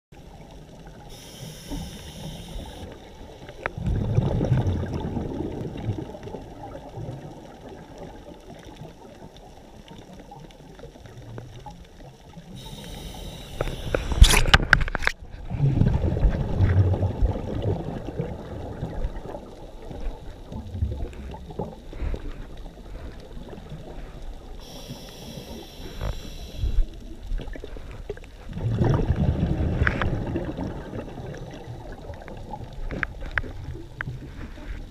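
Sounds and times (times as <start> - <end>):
exhaled bubbles burbling: 0.3 - 9.5, 12.5 - 24.1, 28.4 - 34.9
regulator inhalation hiss: 1.1 - 3.5, 12.6 - 14.2, 24.6 - 27.0.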